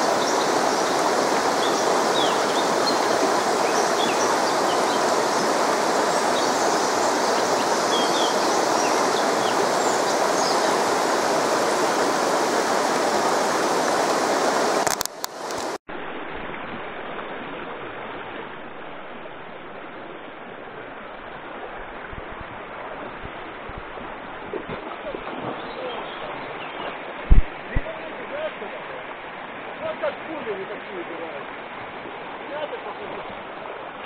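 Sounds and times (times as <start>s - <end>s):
river rushing over rocks: 0.0s - 18.7s
dull wash of water: 0.0s - 34.0s.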